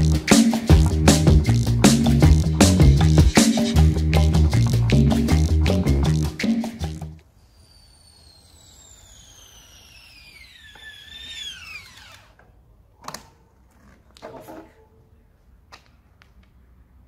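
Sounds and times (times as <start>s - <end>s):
bike freehub buzzing: 7.2s - 12.5s.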